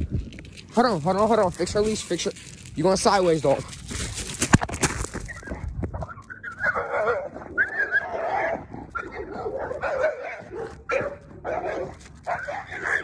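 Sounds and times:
dogs barking and whining: 0:05.2 - 0:13.0.

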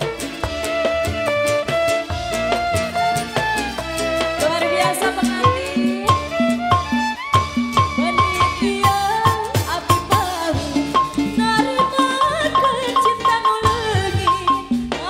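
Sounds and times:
live band playing: 0:00.0 - 0:15.0
woman singing into microphone: 0:04.3 - 0:06.8, 0:07.8 - 0:15.0.

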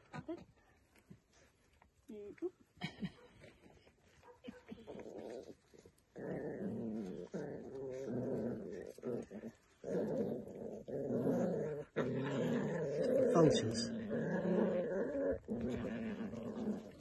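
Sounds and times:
puppies growling: 0:04.9 - 0:17.0.

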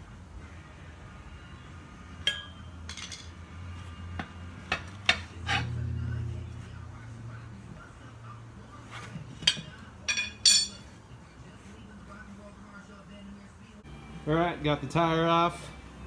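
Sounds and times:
low steady hum: 0:00.0 - 0:16.0
metal tool clinking on wheel rim: 0:02.2 - 0:03.4, 0:09.4 - 0:11.0.

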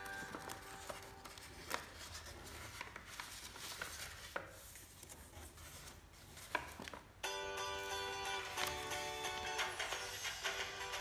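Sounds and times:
paper rustling and crinkling: 0:00.0 - 0:07.2, 0:08.4 - 0:09.0.

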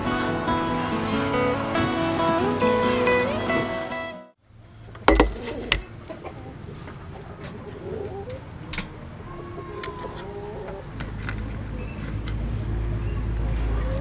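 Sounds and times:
chickens clucking: 0:04.8 - 0:14.0.

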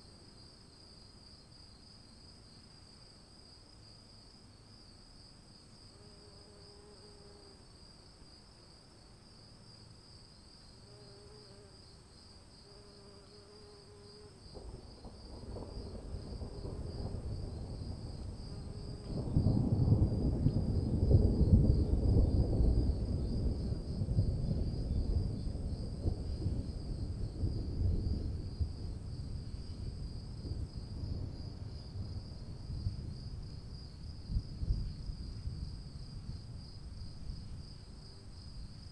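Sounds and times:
insects chirring: 0:00.0 - 0:38.9.

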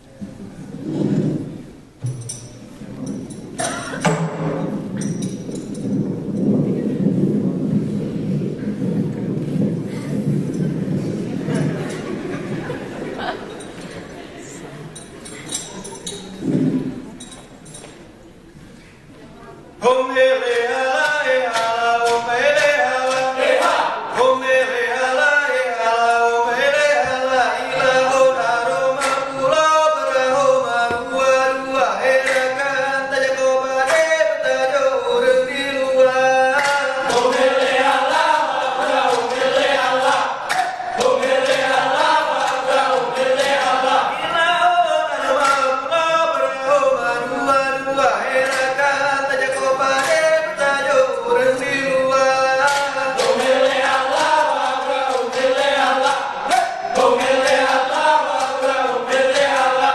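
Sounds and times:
sharp percussive strikes: 0:02.0 - 0:08.2
men chanting in unison: 0:19.8 - 0:59.9.

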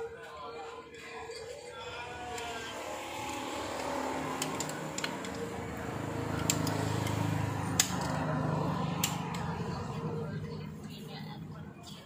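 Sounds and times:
screwdriver clicking and scraping: 0:04.4 - 0:05.5, 0:06.4 - 0:07.2.

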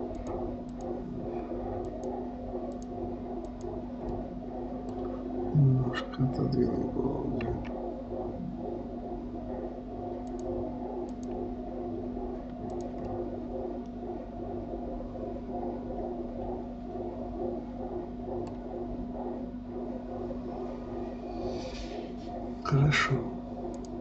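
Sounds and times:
computer mouse clicks: 0:00.0 - 0:05.2, 0:10.1 - 0:11.6, 0:12.3 - 0:14.0, 0:18.3 - 0:18.7, 0:23.6 - 0:24.0
electrical hum: 0:00.0 - 0:24.0.

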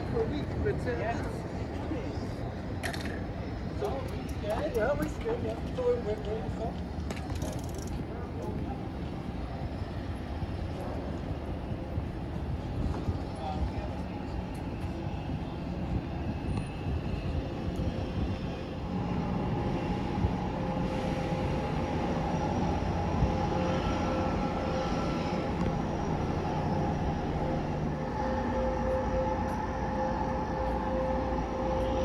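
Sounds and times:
ferry machinery drone: 0:00.0 - 0:32.0
wind noise on microphone: 0:00.0 - 0:32.0
two-tone hum: 0:14.5 - 0:32.0.

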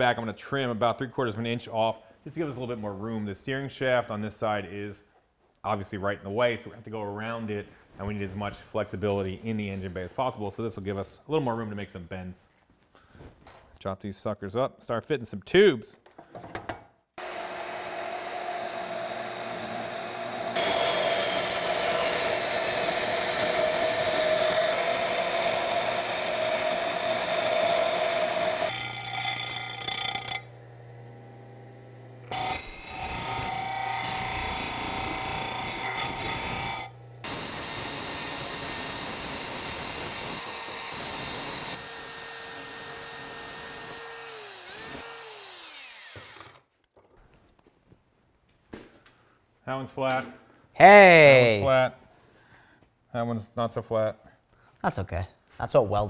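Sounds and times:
grinding metal: 0:17.2 - 0:30.8, 0:32.3 - 0:46.4
band saw cutting steel: 0:17.2 - 0:46.6
tool motor winding down: 0:17.2 - 0:46.7.

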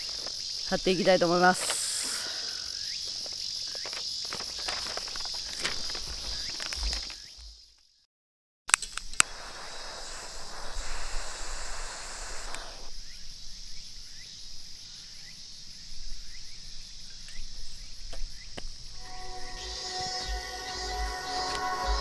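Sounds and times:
high-pitched insect drone: 0:00.0 - 0:07.4, 0:18.9 - 0:22.0.

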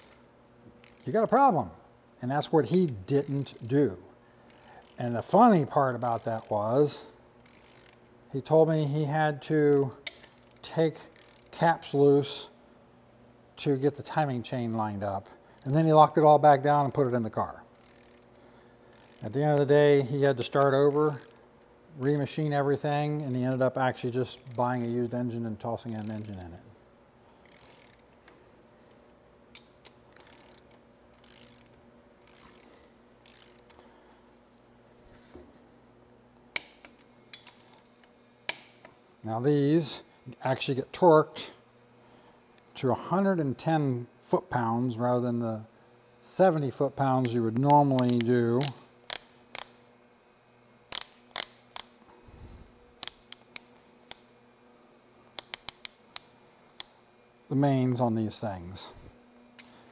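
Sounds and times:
socket ratchet clicking: 0:00.0 - 0:01.4, 0:02.7 - 0:03.7, 0:04.5 - 0:06.7, 0:07.4 - 0:08.0, 0:09.7 - 0:11.6, 0:17.7 - 0:18.3, 0:18.9 - 0:19.8, 0:20.4 - 0:23.7, 0:24.3 - 0:25.1, 0:25.8 - 0:26.5, 0:27.4 - 0:28.4, 0:29.5 - 0:33.8, 0:36.5 - 0:38.9, 0:47.2 - 0:49.8, 0:50.9 - 0:52.0, 0:53.0 - 0:54.3, 0:55.3 - 0:57.0.

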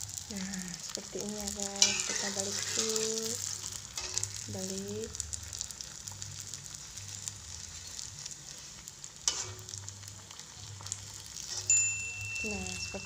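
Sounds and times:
oil sizzling in a wok: 0:00.0 - 0:13.0
metal spatula scraping a wok: 0:01.7 - 0:04.5, 0:06.1 - 0:10.1, 0:10.8 - 0:11.8.

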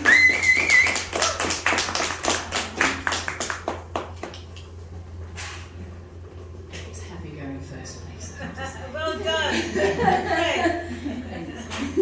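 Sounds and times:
high whistle: 0:00.0 - 0:01.1
small audience clapping: 0:00.0 - 0:04.8.

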